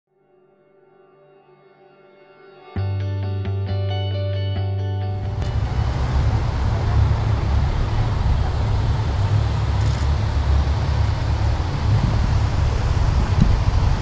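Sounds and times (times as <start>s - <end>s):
car engine and tyres pulling up: 5.2s - 14.0s
wind rumble on microphone: 5.4s - 14.0s.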